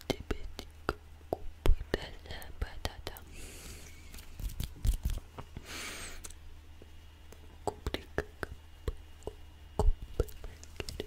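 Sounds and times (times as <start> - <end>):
steady low hum: 0.0 - 11.0
mouth clicks and lip sounds: 7.3 - 11.0.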